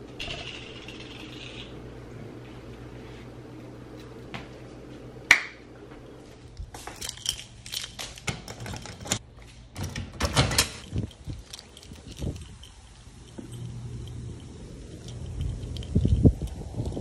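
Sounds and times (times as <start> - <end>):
keys jangling: 6.8 - 9.2, 9.8 - 17.0
mailbox door rattling: 9.8 - 10.9.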